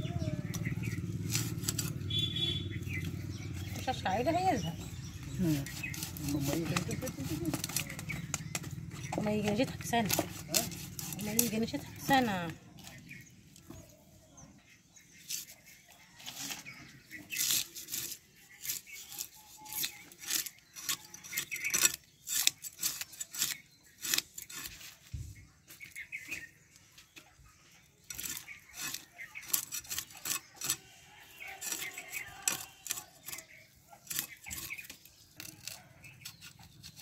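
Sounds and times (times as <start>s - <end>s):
blade scraping fish: 15.2s - 25.0s, 28.0s - 37.0s.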